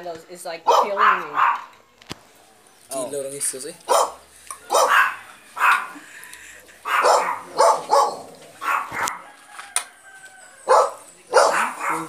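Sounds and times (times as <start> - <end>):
dog barking: 0.6 - 1.7, 3.9 - 6.0, 6.8 - 9.3, 10.7 - 12.0.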